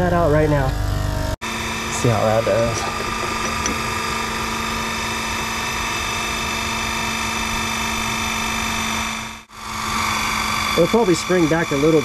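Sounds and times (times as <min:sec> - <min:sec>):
electric hydraulic jack running: 0:00.0 - 0:12.0.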